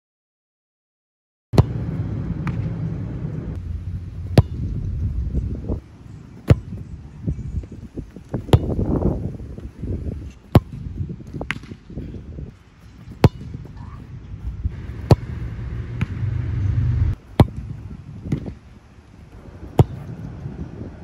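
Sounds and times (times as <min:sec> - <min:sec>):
wind rumbling on microphone: 0:01.7 - 0:21.0
ball kicked hard: 0:04.2 - 0:04.7, 0:14.7 - 0:16.2, 0:17.4 - 0:17.7, 0:19.7 - 0:20.2.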